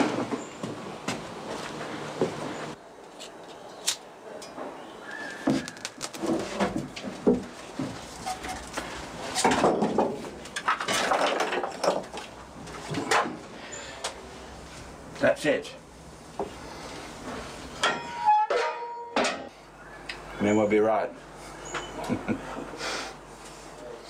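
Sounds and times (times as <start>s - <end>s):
firewood knocking and clattering: 5.4s - 13.4s.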